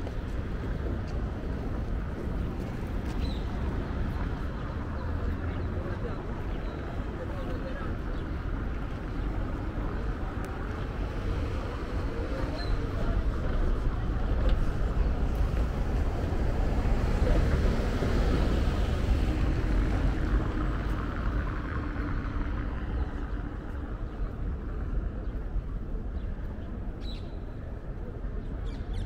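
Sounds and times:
passing vehicle engine and tyres: 0:08.0 - 0:25.3.

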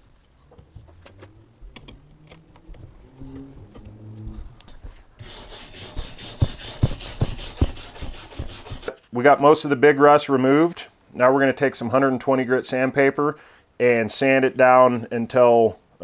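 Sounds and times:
abrasive block scraping metal: 0:04.7 - 0:08.9.

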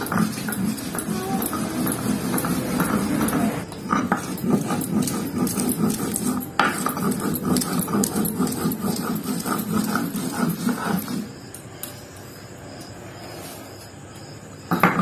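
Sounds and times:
stone grinder scraping on stone: 0:00.0 - 0:11.6.

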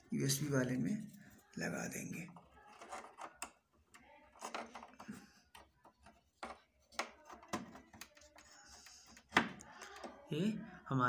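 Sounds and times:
plastic clicks taps and scrapes: 0:02.3 - 0:10.3.

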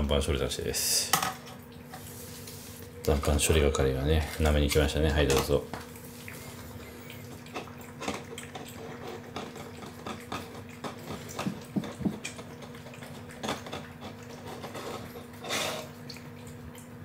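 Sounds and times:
steady low hum: 0:00.0 - 0:17.0
cat lapping wet food: 0:05.1 - 0:17.0.

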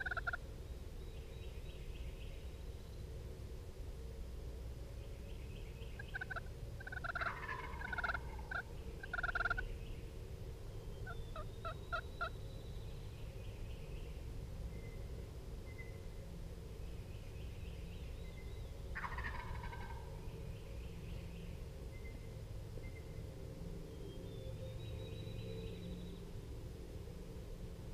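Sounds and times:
turkey gobbling: 0:00.0 - 0:00.4, 0:06.0 - 0:09.6, 0:11.0 - 0:12.3, 0:19.0 - 0:20.2.

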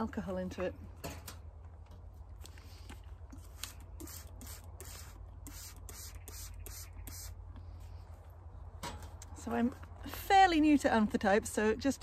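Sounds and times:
spray bottle hisses: 0:03.5 - 0:07.4.

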